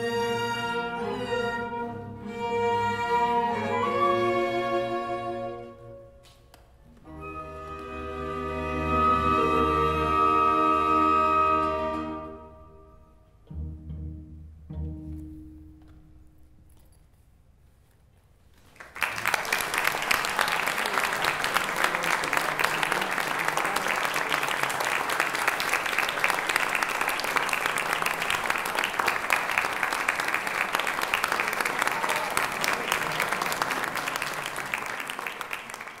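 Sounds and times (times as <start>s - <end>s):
audience applause: 18.7s - 36.0s.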